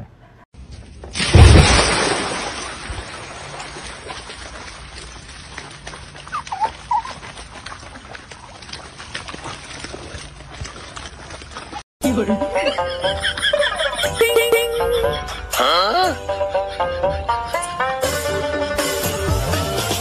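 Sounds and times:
dog splashing in stream: 0:01.2 - 0:11.8
dog whining: 0:06.3 - 0:07.2.

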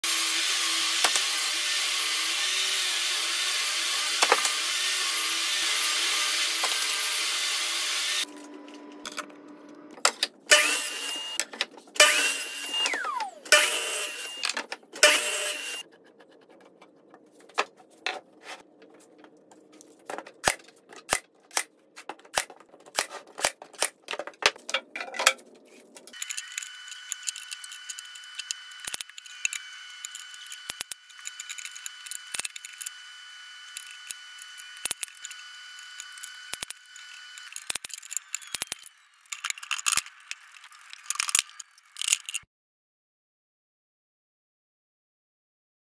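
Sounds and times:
power tool bursts: 0:00.0 - 0:08.3, 0:10.5 - 0:11.4, 0:12.0 - 0:15.8, 0:26.1 - 0:39.9
table saw cutting plywood: 0:00.0 - 0:09.0, 0:10.4 - 0:15.9, 0:25.8 - 0:39.5
brad nailer clicks: 0:01.0 - 0:01.3, 0:04.0 - 0:04.6, 0:33.7 - 0:40.1.

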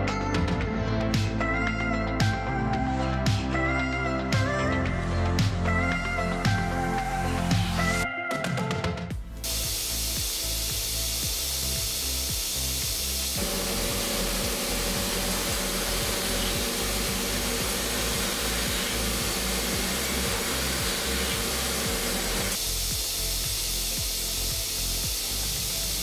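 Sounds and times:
background music with steady beat: 0:00.0 - 0:26.0
drill boring into steel: 0:09.4 - 0:26.0
spindle hiss: 0:09.4 - 0:26.0.

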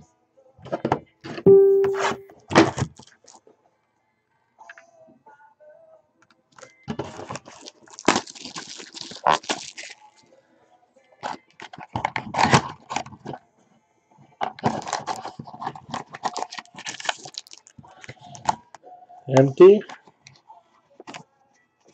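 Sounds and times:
foil pack crinkling: 0:07.4 - 0:10.0, 0:16.1 - 0:17.8.

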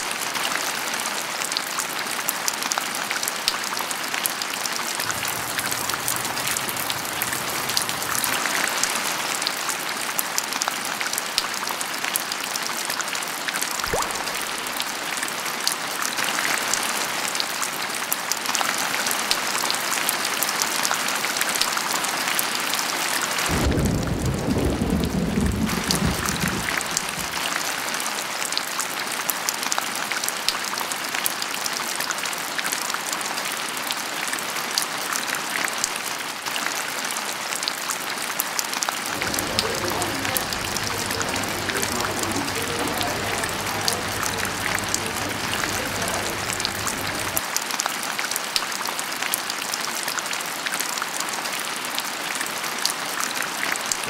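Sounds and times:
rain pattering on hard surfaces: 0:00.0 - 0:54.0
thunder rumble: 0:05.1 - 0:08.8, 0:23.5 - 0:27.5, 0:39.1 - 0:47.4.

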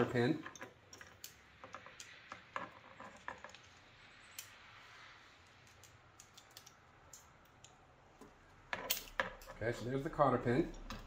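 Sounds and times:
pliers clicking: 0:05.7 - 0:08.3.

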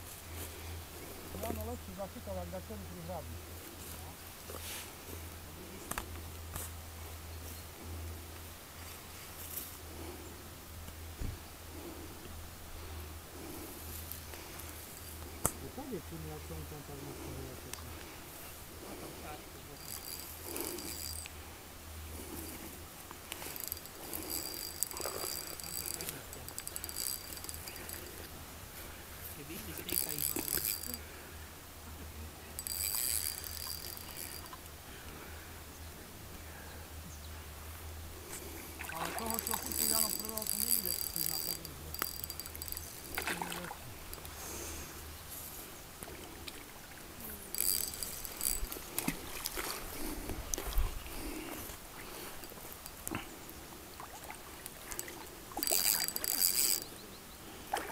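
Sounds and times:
faint clicks: 0:17.7 - 0:18.1, 0:19.8 - 0:21.4, 0:23.1 - 0:28.4, 0:29.7 - 0:31.0, 0:32.6 - 0:34.7, 0:39.2 - 0:43.4, 0:47.5 - 0:49.7, 0:54.2 - 0:56.9
insects trilling: 0:17.9 - 0:31.5, 0:32.3 - 0:35.0, 0:38.2 - 0:45.9, 0:47.0 - 0:50.2, 0:51.0 - 0:57.8
fish splashing in water: 0:38.7 - 0:44.2.

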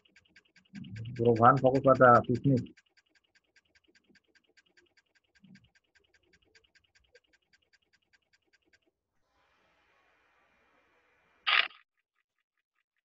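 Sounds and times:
faint rapid ticking: 0:00.0 - 0:08.9.

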